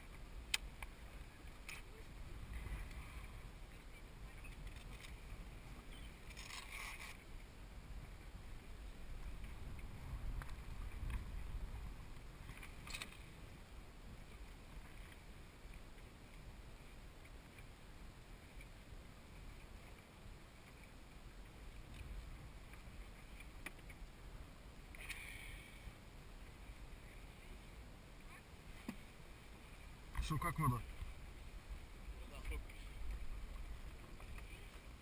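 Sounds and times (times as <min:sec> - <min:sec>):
wind and sea rumble: 0:00.0 - 0:35.0.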